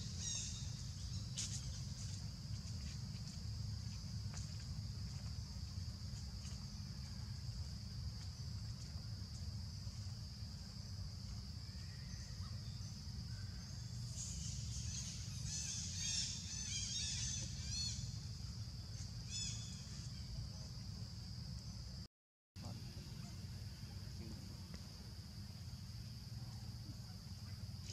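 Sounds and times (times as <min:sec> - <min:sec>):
insect drone: 0:00.0 - 0:27.9.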